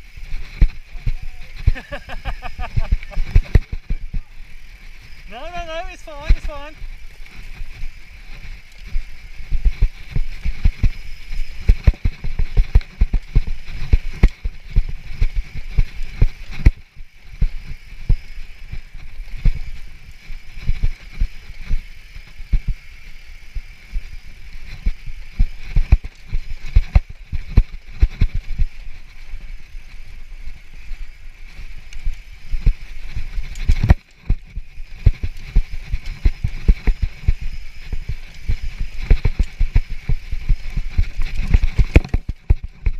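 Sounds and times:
tyre hiss and rushing air: 0.0 - 11.8.

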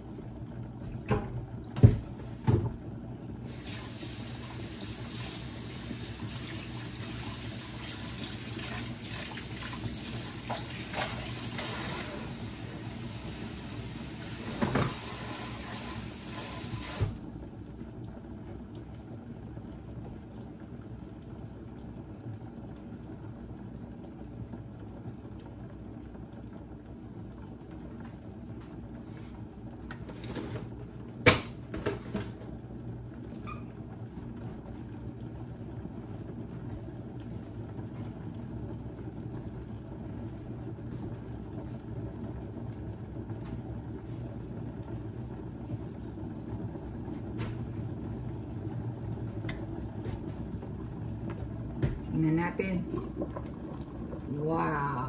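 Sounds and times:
pot of soup rumbling on stove: 0.0 - 55.0
kitchen tap running: 3.5 - 17.4, 50.7 - 55.0.

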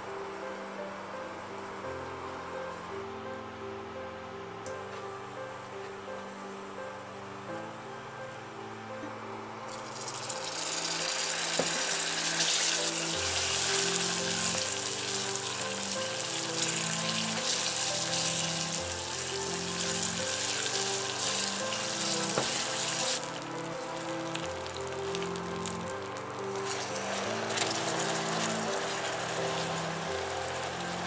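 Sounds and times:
soft background music: 0.0 - 31.0
caramel sizzling and bubbling: 9.7 - 31.0.

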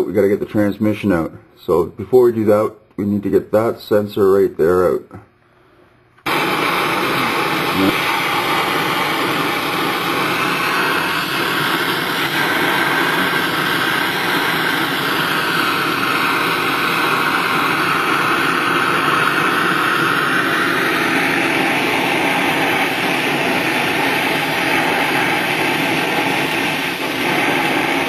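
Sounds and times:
machine running steadily: 6.3 - 28.0.

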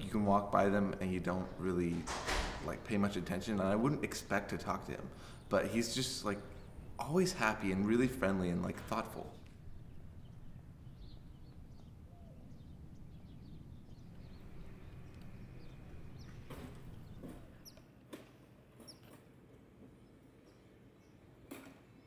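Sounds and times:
low steady rumble: 2.9 - 17.6
high bird chirps: 9.4 - 17.8.

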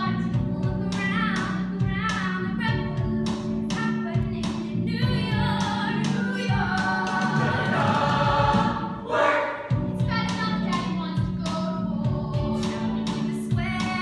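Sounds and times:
choir singing with accompaniment: 5.5 - 10.0.

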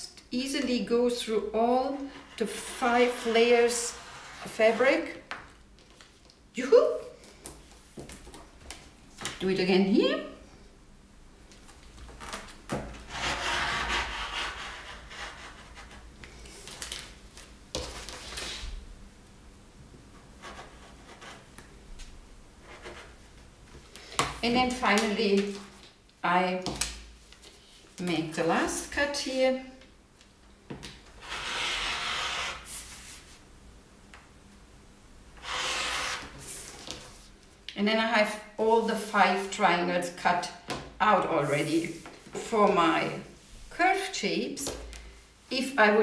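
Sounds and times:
rotary cutter slicing fabric: 31.2 - 32.7, 35.4 - 36.4.

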